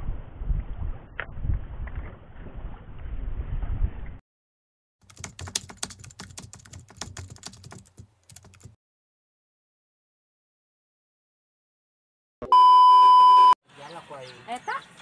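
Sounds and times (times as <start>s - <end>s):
wind noise on microphone: 0.0s - 4.2s.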